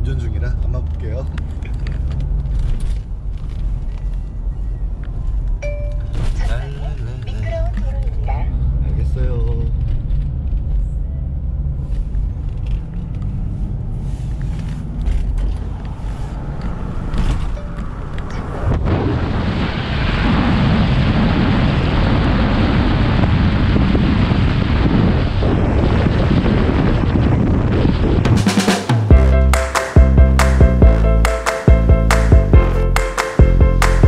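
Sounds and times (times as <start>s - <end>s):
car engine and road noise: 0.0s - 20.4s, 22.6s - 34.0s
even rushing noise: 23.2s - 34.0s.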